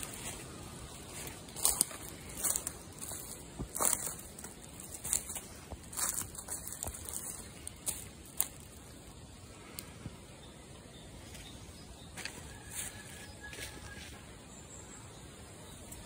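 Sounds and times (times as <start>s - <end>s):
footsteps crunching dry leaves: 0.0s - 9.2s, 11.2s - 14.2s
faint outdoor background: 0.0s - 16.0s.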